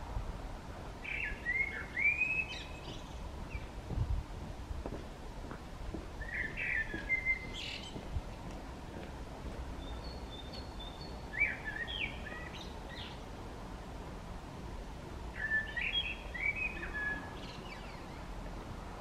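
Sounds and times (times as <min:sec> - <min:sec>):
blackbird singing: 0:01.0 - 0:03.7, 0:06.2 - 0:08.1, 0:09.8 - 0:13.2, 0:15.4 - 0:18.3.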